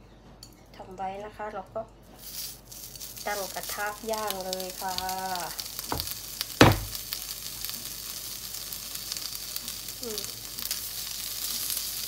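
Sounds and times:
pork sizzling in a frying pan: 2.2s - 12.0s
sharp knock: 5.9s - 7.0s.

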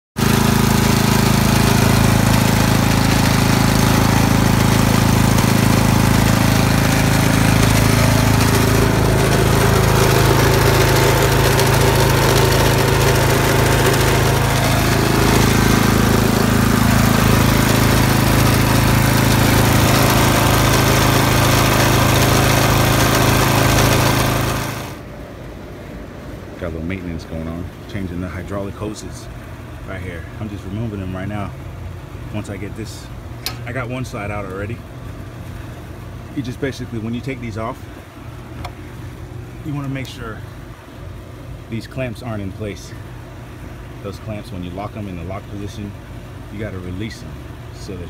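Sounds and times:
lawn mower engine running: 0.2s - 25.1s, 32.3s - 40.6s.

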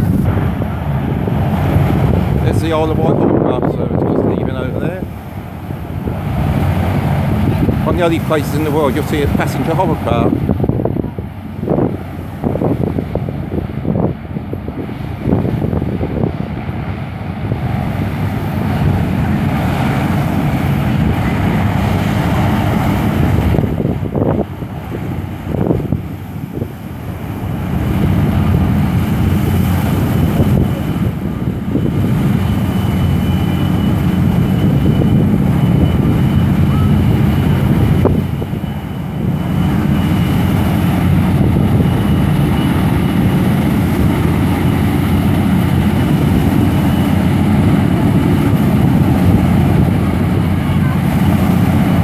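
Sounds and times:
hovercraft propeller drone: 0.0s - 52.0s.

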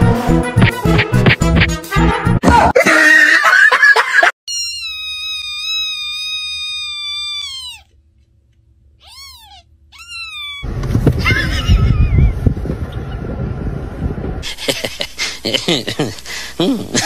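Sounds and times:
background music: 0.0s - 2.4s
newborn kitten crying: 4.5s - 7.9s, 9.0s - 10.7s.

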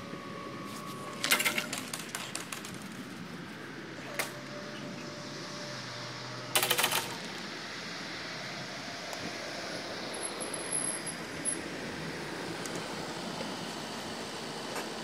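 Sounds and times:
faint hum of barrier drives: 0.0s - 15.0s
barrier arm rattling clatter: 1.2s - 2.8s.

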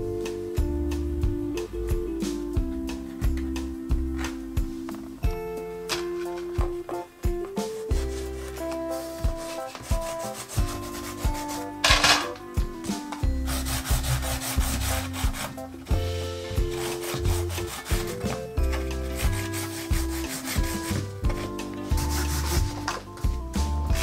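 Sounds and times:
background music: 0.0s - 24.0s
chalk scraping on cardboard: 7.6s - 12.0s, 13.4s - 23.0s.

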